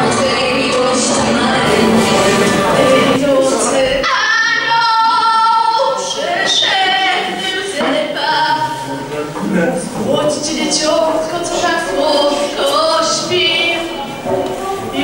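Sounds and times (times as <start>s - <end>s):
musical accompaniment: 0.0s - 4.4s
female singer through pa: 0.0s - 8.8s, 10.0s - 15.0s.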